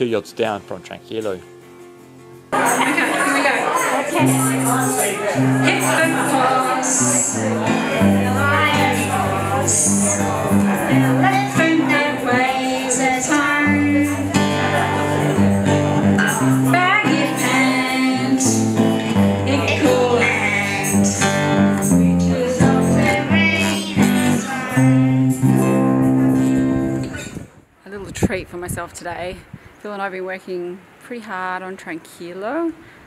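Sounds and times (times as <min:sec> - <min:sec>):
acoustic guitar: 0:00.0 - 0:28.0
person singing: 0:05.4 - 0:25.7.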